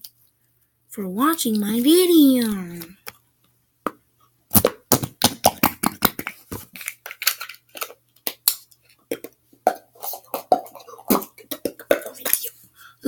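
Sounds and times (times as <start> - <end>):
plastic tubs and lids clacking: 9.1 - 12.5.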